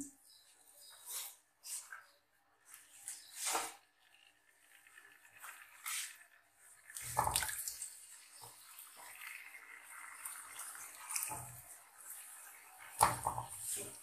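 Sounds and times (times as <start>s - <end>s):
oil sizzling: 3.1s - 14.0s.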